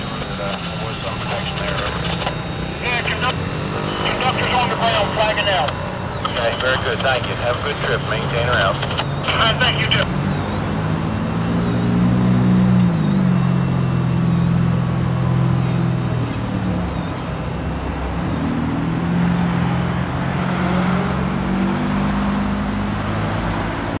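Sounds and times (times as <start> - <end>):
steady engine drone: 0.0 - 24.0.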